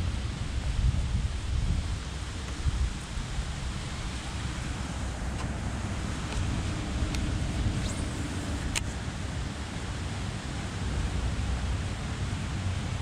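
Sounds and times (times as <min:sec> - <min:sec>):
wind buffeting microphone: 0:00.0 - 0:09.6.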